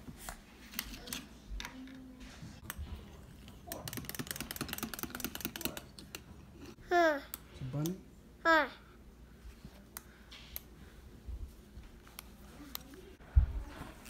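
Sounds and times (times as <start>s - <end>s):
mechanical toy clicking: 3.7s - 6.2s.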